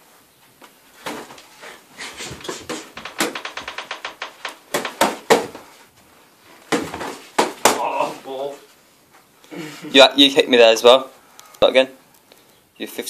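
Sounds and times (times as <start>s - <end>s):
boxing gloves thudding: 4.3s - 5.7s, 6.7s - 8.0s.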